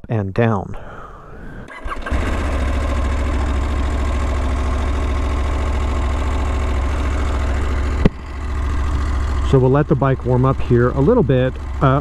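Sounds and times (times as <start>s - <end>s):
person speaking: 0.0s - 1.6s, 9.4s - 12.0s
motorcycle engine idling: 1.7s - 12.0s.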